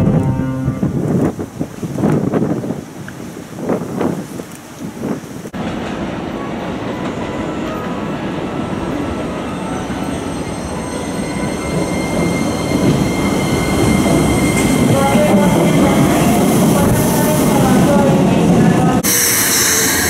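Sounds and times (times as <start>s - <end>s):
electric train pulling in: 5.6s - 20.0s.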